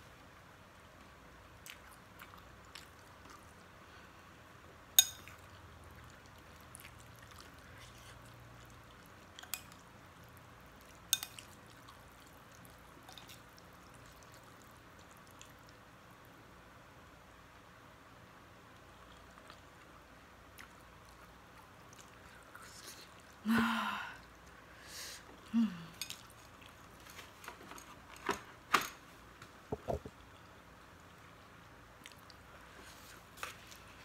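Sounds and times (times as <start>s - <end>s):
cutlery clinking on glass bowl: 5.0s - 5.4s, 11.1s - 11.5s.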